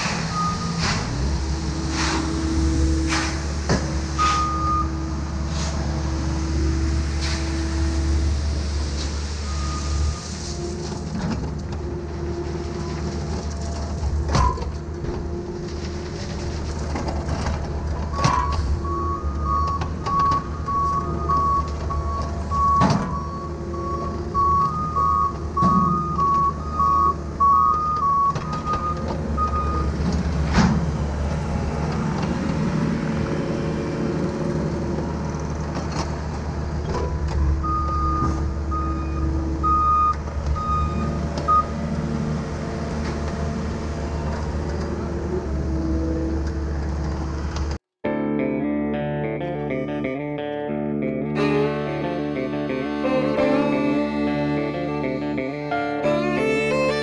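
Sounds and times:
truck backup alarm beeping: 0.0 - 0.8, 4.2 - 5.1, 9.4 - 10.3, 18.1 - 30.0, 37.4 - 41.8
excavator diesel engine running: 0.0 - 47.8, 51.0 - 57.0.

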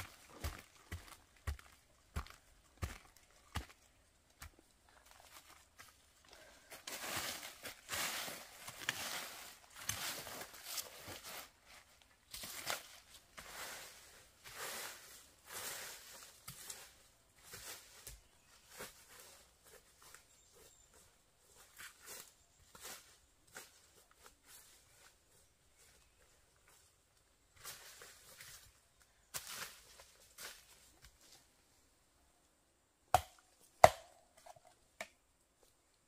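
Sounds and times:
dry leaves crackling and rustling: 6.4 - 16.3.

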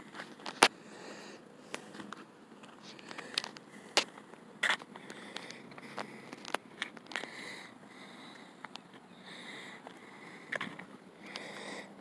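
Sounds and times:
footsteps on asphalt: 1.8 - 7.3, 9.8 - 11.6.

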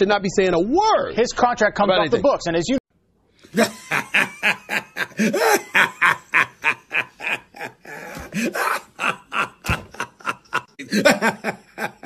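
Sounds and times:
man laughing hard: 3.5 - 12.0.

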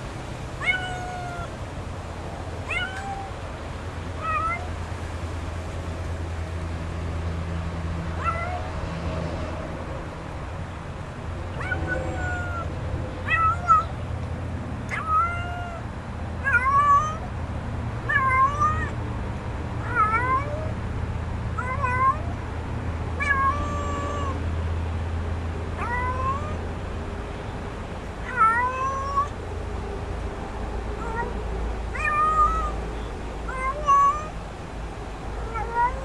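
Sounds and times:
kitten meowing: 0.6 - 1.6, 2.6 - 3.4, 4.2 - 4.7, 8.2 - 8.7, 11.5 - 12.7, 13.3 - 13.9, 14.9 - 15.8, 16.4 - 17.2, 18.1 - 19.0, 19.8 - 20.7, 21.6 - 22.4, 23.2 - 24.4, 25.8 - 26.6, 28.2 - 29.4, 31.0 - 32.8, 33.5 - 34.4, 35.4 - 36.0.

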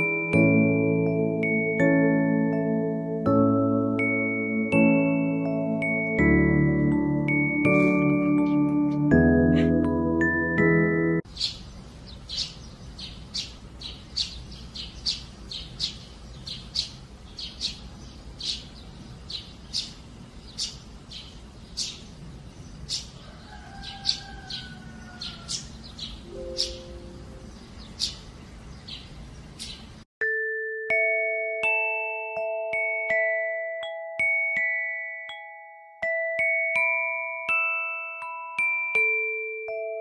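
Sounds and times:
glockenspiel-like melody: 0.0 - 11.3, 26.2 - 27.5, 30.2 - 40.0
low outdoor background: 0.0 - 30.1
sparrow chirping: 9.5 - 9.8, 11.2 - 30.0.

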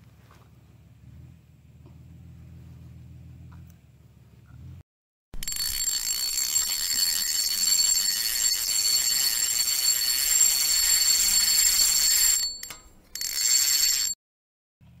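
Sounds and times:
steady ringing tones: 5.4 - 14.2.

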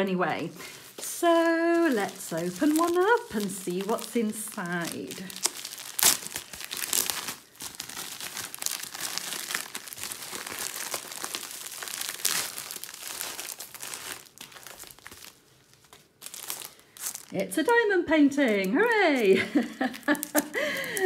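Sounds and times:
plastic mailer crinkling: 0.2 - 21.0
sharp ripping: 1.8 - 17.4, 18.8 - 21.0.

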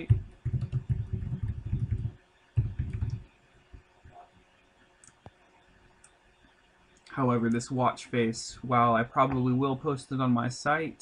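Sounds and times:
typing on computer keyboard: 0.0 - 3.2.

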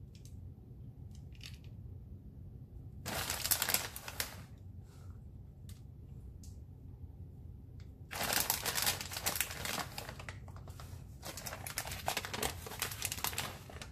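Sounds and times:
plastic bag crinkling: 3.1 - 4.5, 8.1 - 13.9.

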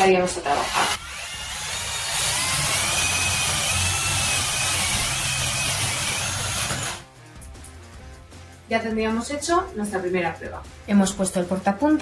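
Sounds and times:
drill bit cutting wood: 0.4 - 7.0
drill motor whine: 0.5 - 7.0.

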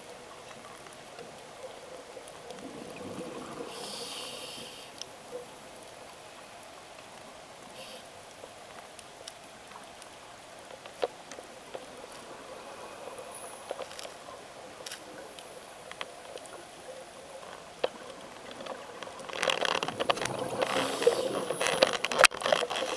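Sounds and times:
faint underwater hiss: 0.0 - 22.9
gurgling bubbles: 2.4 - 4.5, 17.9 - 22.9
small clicks: 17.4 - 22.9.

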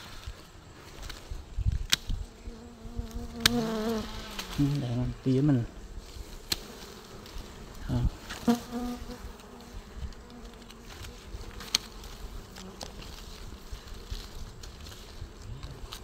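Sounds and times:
bee passing close by: 2.2 - 14.6
bees buzzing: 2.2 - 16.0.

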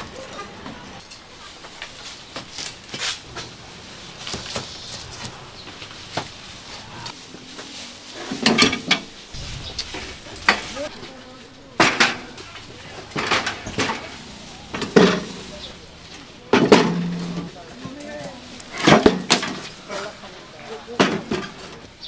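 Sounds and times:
metal grill boxes clanking: 0.0 - 22.0.

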